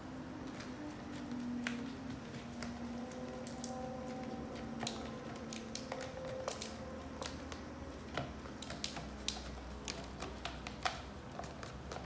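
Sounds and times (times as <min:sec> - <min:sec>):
spoon stirring in plastic cup: 0:04.0 - 0:12.0.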